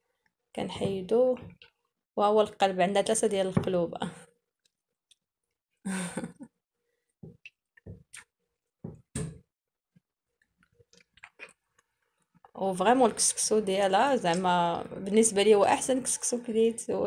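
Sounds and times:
wet squelches and clicks: 0:10.4 - 0:12.6.

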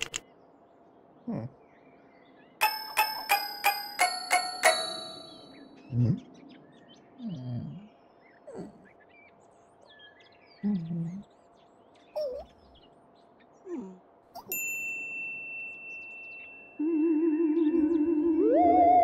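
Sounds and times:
birds chirping softly: 0:00.0 - 0:19.0
wordless vocal grunts and hums: 0:01.2 - 0:01.6, 0:08.5 - 0:08.9
wavering theremin tone: 0:16.8 - 0:19.0.

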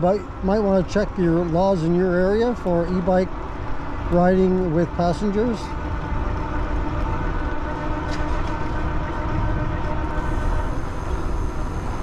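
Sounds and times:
road rumble: 0:00.0 - 0:12.0
wind buffeting microphone: 0:00.2 - 0:12.0
electric motor whine: 0:05.3 - 0:12.0.

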